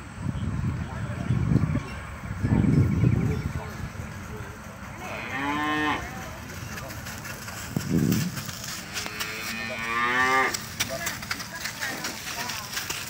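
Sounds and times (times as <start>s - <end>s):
cattle mooing: 5.0s - 6.2s, 9.0s - 10.6s.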